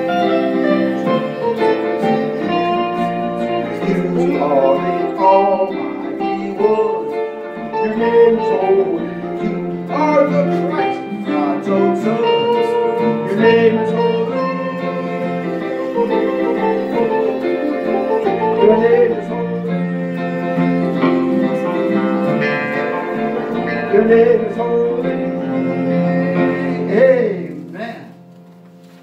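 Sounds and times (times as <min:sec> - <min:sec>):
electric guitar playing: 0:00.0 - 0:29.0
held keyboard chords: 0:00.0 - 0:29.0.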